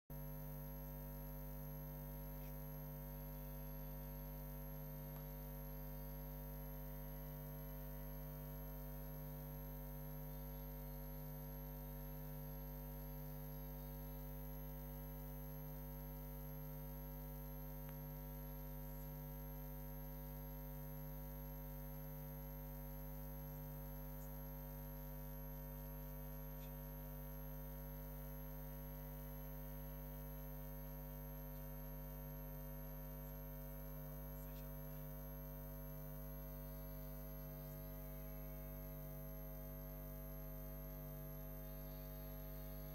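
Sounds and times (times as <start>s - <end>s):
electrical hum: 0.4s - 42.9s
thin high whine: 33.1s - 42.9s.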